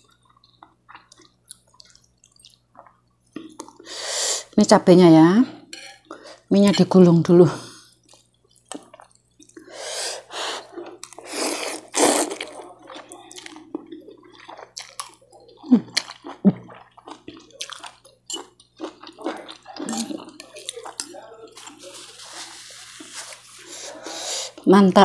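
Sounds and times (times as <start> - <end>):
chewing: 0.0 - 3.8, 8.0 - 9.7, 10.3 - 24.6
cutlery clinking on bowl: 5.7 - 6.0, 19.8 - 20.8
slurping noodles: 9.7 - 12.6.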